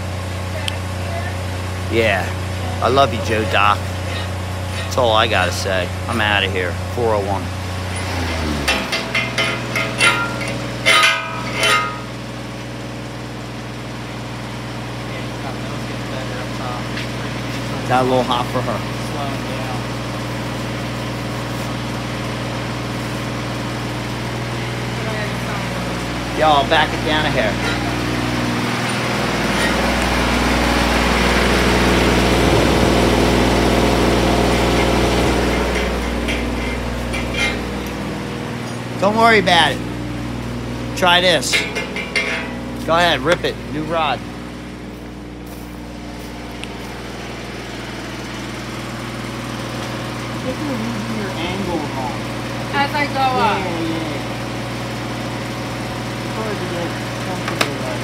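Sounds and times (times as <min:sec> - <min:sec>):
low machine hum: 0:00.0 - 0:58.0
metallic clinks on steel plates: 0:08.7 - 0:12.1.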